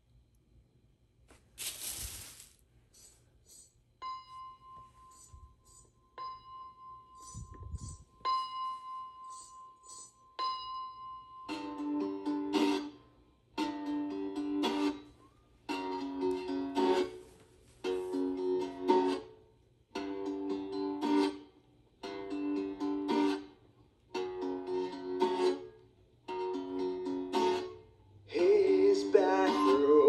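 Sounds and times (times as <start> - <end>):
plucked acoustic string instrument: 11.5 - 15.1, 15.7 - 30.0
person singing: 28.3 - 30.0.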